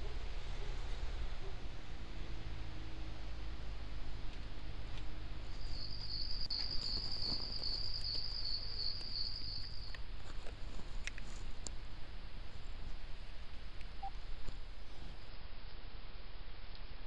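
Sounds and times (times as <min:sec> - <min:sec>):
low hum and hiss: 0:00.0 - 0:17.0
faint clicks: 0:04.3 - 0:11.9
insect trilling: 0:05.5 - 0:10.1.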